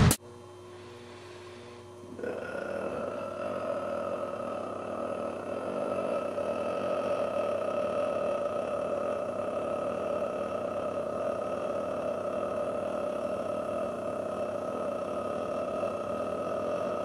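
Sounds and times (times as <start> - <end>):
steady pitched drone: 0.0 - 17.0
faint low hum: 0.2 - 17.0.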